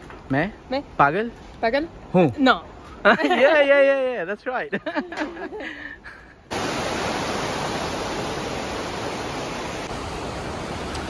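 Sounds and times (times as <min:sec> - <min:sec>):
water rushing over rapids: 0:06.5 - 0:11.0.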